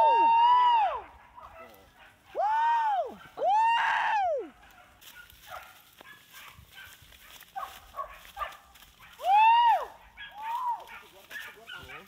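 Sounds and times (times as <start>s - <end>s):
dogs barking and yelping: 0.9s - 2.5s, 4.5s - 12.0s.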